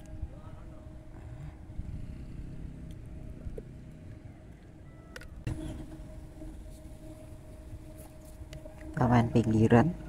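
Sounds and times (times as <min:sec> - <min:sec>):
vehicle engine rumble passing: 0:00.0 - 0:10.0.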